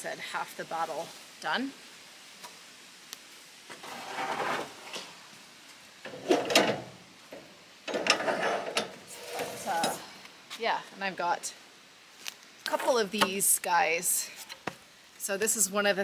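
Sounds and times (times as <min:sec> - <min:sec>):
wood boards scraping and knocking: 0:03.7 - 0:05.2.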